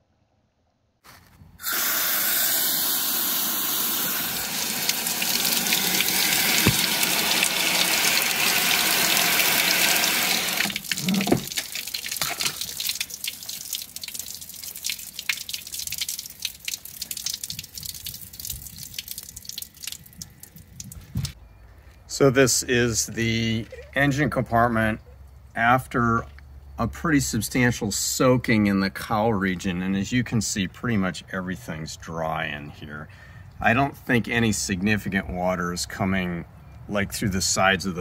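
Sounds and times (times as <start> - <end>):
hose water spraying: 1.6 - 19.4
water splashing and dripping: 3.2 - 21.4.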